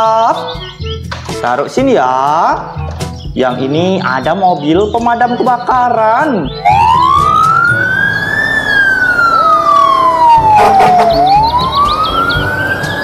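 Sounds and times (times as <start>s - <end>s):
fire truck siren wailing: 6.6s - 13.0s
truck engine rumble: 6.7s - 13.0s.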